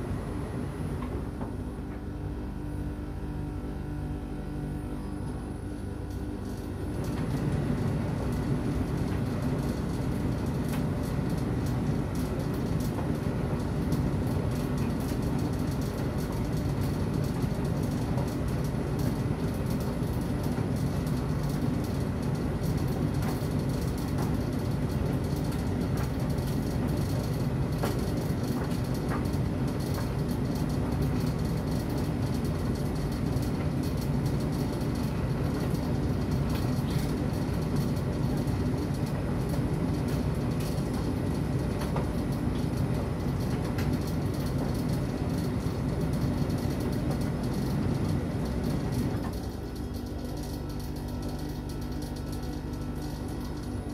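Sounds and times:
tumble dryer rumbling: 0.0s - 53.9s.

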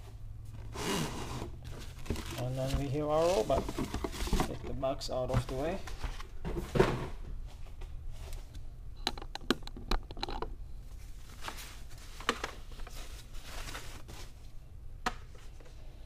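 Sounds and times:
foam sleeve rustling and crackling: 0.8s - 4.5s.

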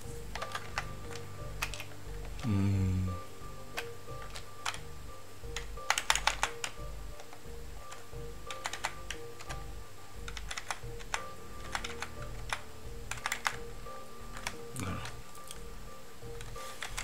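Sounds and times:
quiet background music: 0.0s - 17.0s
keyboard typing: 0.3s - 2.6s, 3.7s - 4.9s, 5.5s - 13.7s, 14.3s - 15.6s, 16.4s - 17.0s.

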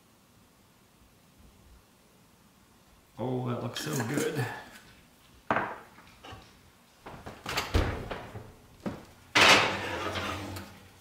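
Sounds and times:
oven rack clattering: 9.3s - 10.9s.

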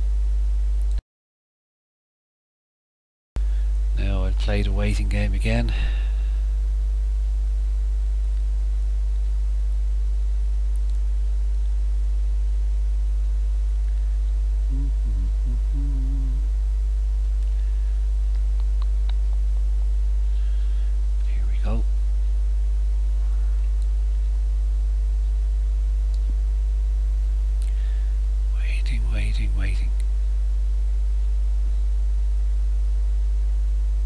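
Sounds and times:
electrical mains hum: 0.0s - 1.0s, 3.4s - 34.0s
faint low murmur: 3.4s - 34.0s
faint click: 10.7s - 11.0s.

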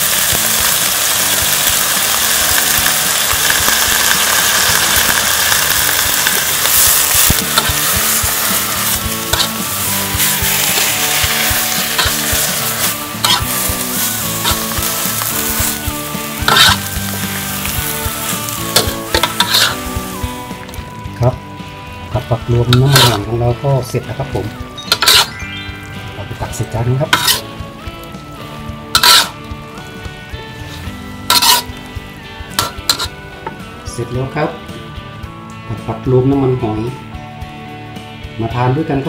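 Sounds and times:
vegetables sizzling in a wok: 0.0s - 35.0s
soft background music: 0.0s - 39.0s
spatula scraping a wok: 5.1s - 20.3s, 22.7s - 23.3s, 24.9s - 25.4s, 27.0s - 27.5s, 28.9s - 29.5s, 30.5s - 31.8s, 32.5s - 33.2s.

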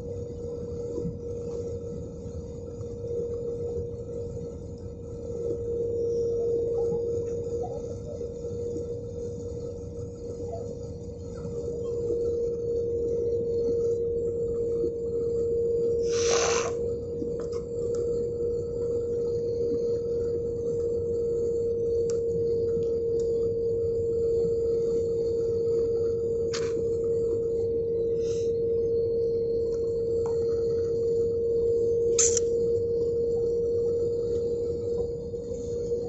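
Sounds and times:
jet engines droning: 0.0s - 36.0s
steady single tone: 11.8s - 36.0s
brief hiss: 16.1s - 16.8s.

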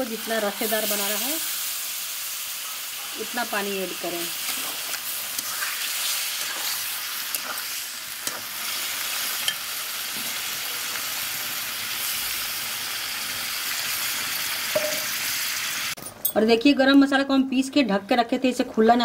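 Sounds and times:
food sizzling in a pan: 0.0s - 16.0s.

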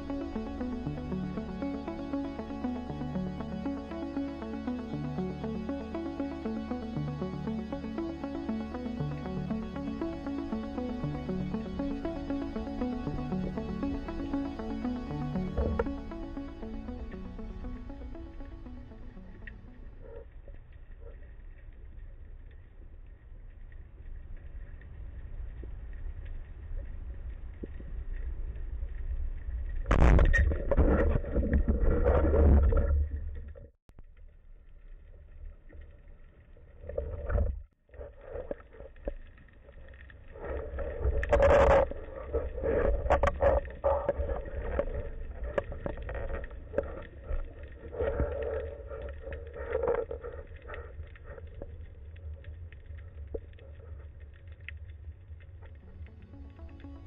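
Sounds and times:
muffled underwater noise: 9.5s - 28.5s, 35.2s - 57.0s.

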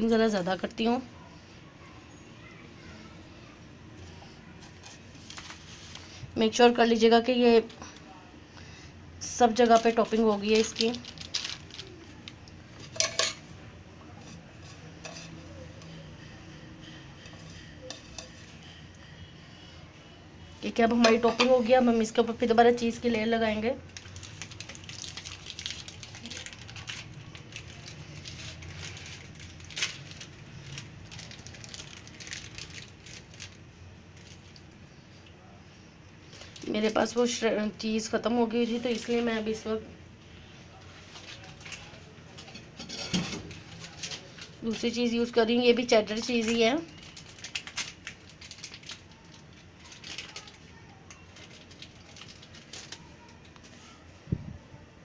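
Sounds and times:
soft crackling and rustling: 3.9s - 6.4s, 38.4s - 45.0s
cheese pieces pattering onto food: 23.8s - 34.8s, 45.8s - 53.6s.

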